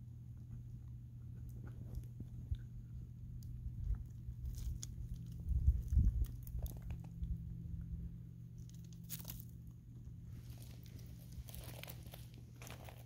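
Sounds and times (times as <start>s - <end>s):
steady low hum: 0.0s - 13.0s
puppy chewing branches: 1.4s - 7.4s, 10.3s - 13.0s
wood cracking and crunching: 10.5s - 13.0s.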